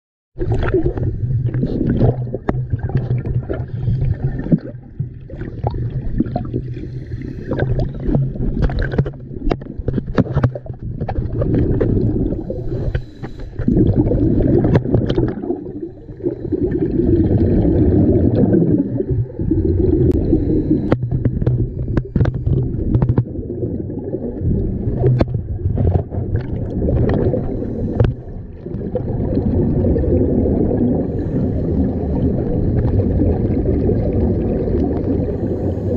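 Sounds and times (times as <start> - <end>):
exhaled bubbles rushing: 0.4 - 35.9
scuba diver breathing underwater: 0.8 - 8.6, 11.4 - 23.1, 26.9 - 28.7, 29.8 - 33.0, 34.8 - 35.9.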